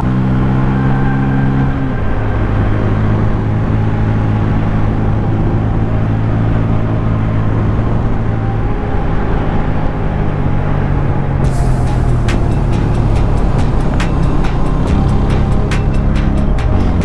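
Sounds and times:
rush of noise: 0:00.0 - 0:17.0
motorcycle engine running: 0:11.4 - 0:17.0.

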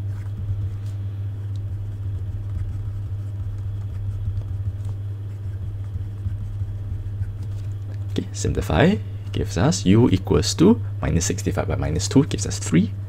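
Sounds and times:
pen scratching on paper: 0:00.0 - 0:08.0
steady low hum: 0:00.0 - 0:13.0.

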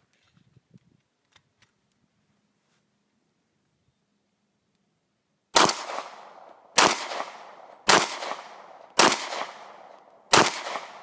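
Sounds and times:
pistol shots with echo: 0:05.6 - 0:11.0.

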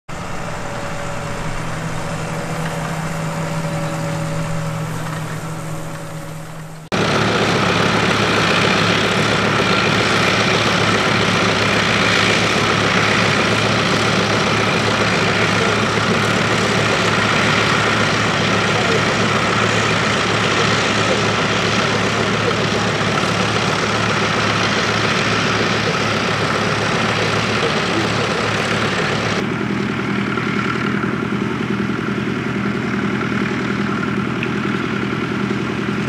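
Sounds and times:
steady hum with held tones: 0:00.1 - 0:06.9
tractor engine running: 0:00.1 - 0:36.0.

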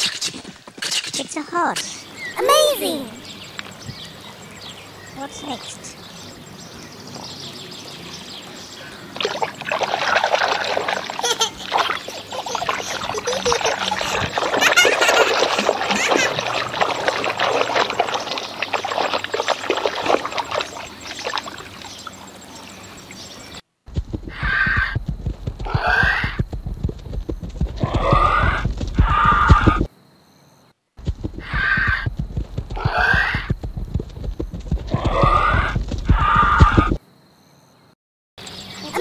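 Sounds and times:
water splashing in a tub: 0:09.1 - 0:22.4
loud animal call: 0:24.3 - 0:25.0, 0:25.7 - 0:26.4, 0:27.8 - 0:29.9, 0:31.4 - 0:32.1, 0:32.8 - 0:33.6, 0:34.9 - 0:37.0.

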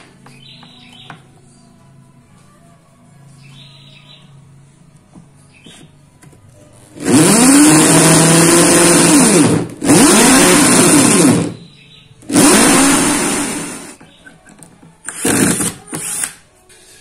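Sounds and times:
electric drill boring into wood: 0:07.0 - 0:11.6, 0:12.3 - 0:14.0, 0:15.1 - 0:16.3.

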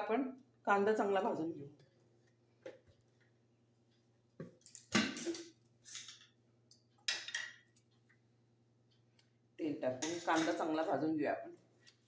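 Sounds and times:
utensils and containers clattering: 0:04.5 - 0:06.3, 0:10.0 - 0:10.7.

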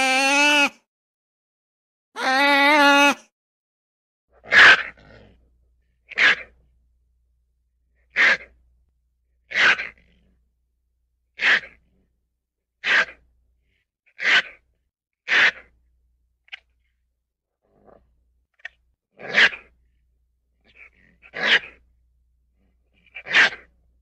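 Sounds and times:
ferret sneezing: 0:15.3 - 0:15.7.

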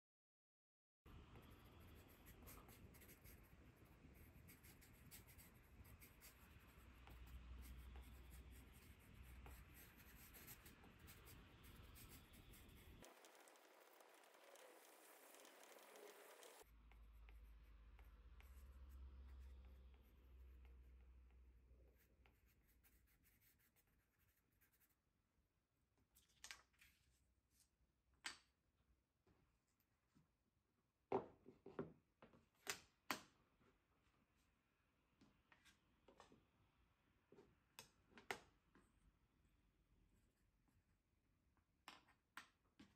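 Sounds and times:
faint low hum: 0:01.1 - 0:24.9
pencil scratching on paper: 0:01.3 - 0:25.0.

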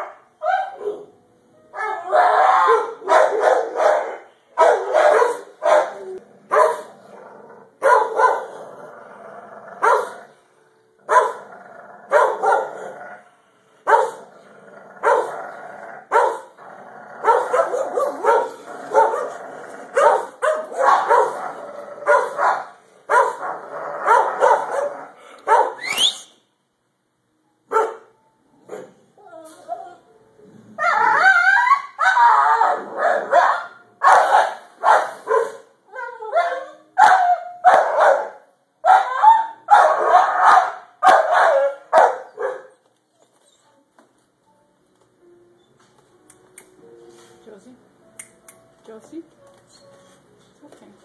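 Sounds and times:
dogs crying: 0:01.8 - 0:06.9, 0:30.8 - 0:34.4, 0:38.9 - 0:43.8
dogs barking: 0:01.8 - 0:07.0, 0:07.8 - 0:08.6, 0:09.8 - 0:10.3, 0:11.1 - 0:11.5, 0:12.1 - 0:13.0, 0:13.8 - 0:14.3, 0:15.0 - 0:15.4, 0:16.1 - 0:16.6, 0:17.2 - 0:25.9, 0:27.7 - 0:28.1, 0:30.8 - 0:35.7, 0:36.3 - 0:42.9
dog yelping: 0:35.3 - 0:43.7.

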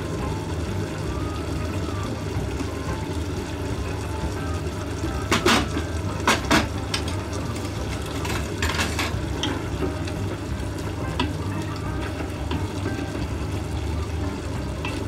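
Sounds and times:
utensils clinking against pot: 0:05.3 - 0:07.1, 0:08.1 - 0:09.9.

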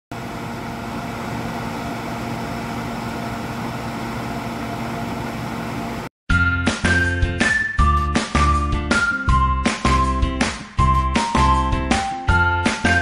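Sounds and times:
fan humming: 0:00.1 - 0:06.1.

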